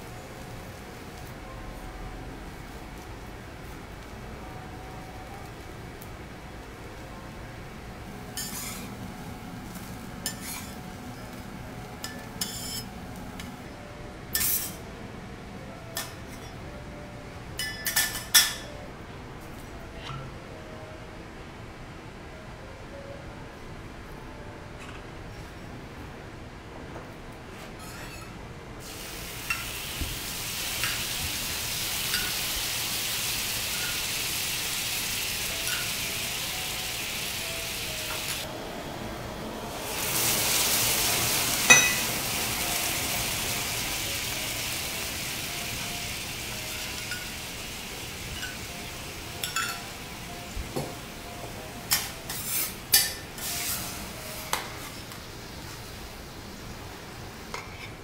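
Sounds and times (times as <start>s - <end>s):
sauce sizzling on a griddle: 7.7s - 13.0s, 28.8s - 54.6s
metal spatula scraping a griddle: 8.4s - 9.0s, 10.2s - 10.9s, 12.0s - 13.0s, 27.8s - 28.4s, 51.9s - 54.0s.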